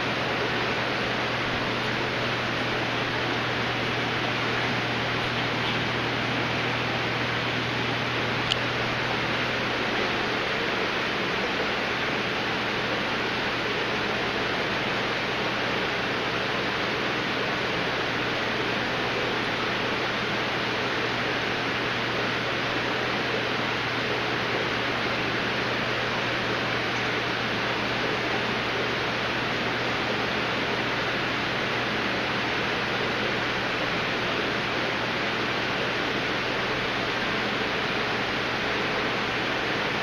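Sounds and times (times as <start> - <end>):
aquarium filters and air pumps: 0.0 - 40.0
small click: 8.4 - 8.7.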